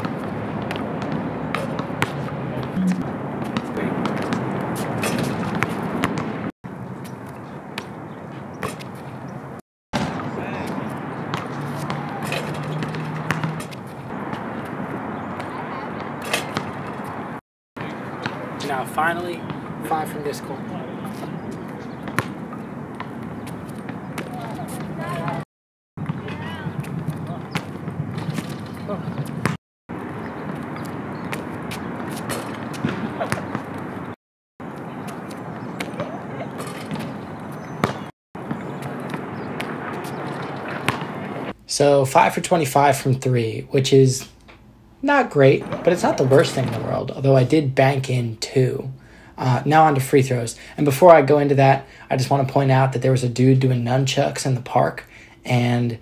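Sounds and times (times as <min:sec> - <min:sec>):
outdoor background noise: 0:00.0 - 0:56.0
basketball knocking on hoop: 0:11.3 - 0:13.8.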